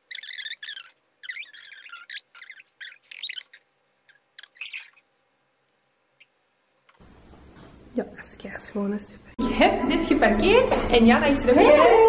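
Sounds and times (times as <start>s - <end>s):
sped-up squeaky voices: 0.0s - 5.0s.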